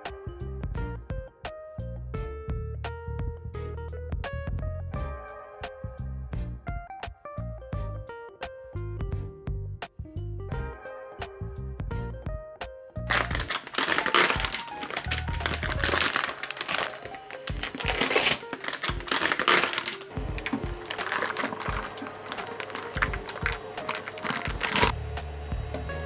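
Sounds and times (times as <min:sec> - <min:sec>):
background music: 0:00.0 - 0:26.0
plastic bags crinkling and tearing: 0:13.1 - 0:25.0.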